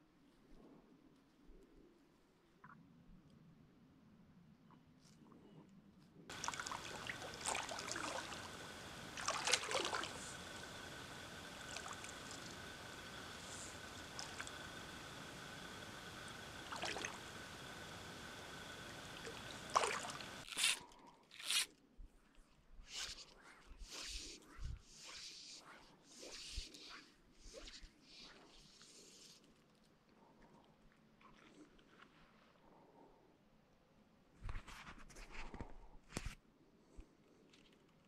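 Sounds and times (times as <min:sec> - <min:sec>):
water sloshing and splashing: 0:06.3 - 0:15.0, 0:16.5 - 0:17.7, 0:19.0 - 0:20.4
faint high whine: 0:06.3 - 0:20.8
steady hiss: 0:06.3 - 0:20.8, 0:22.8 - 0:29.8.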